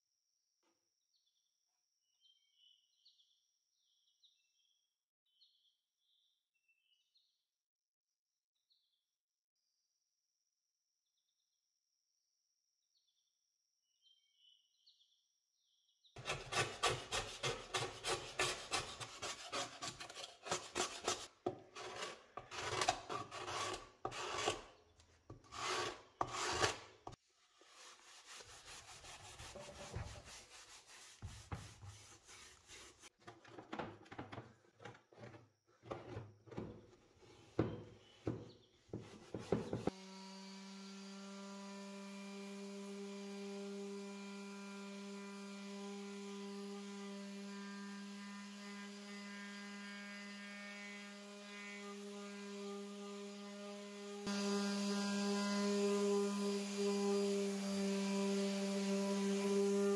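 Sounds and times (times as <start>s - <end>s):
hand scrubbing wet wood: 16.2s - 33.2s
electric sander humming: 50.8s - 59.9s.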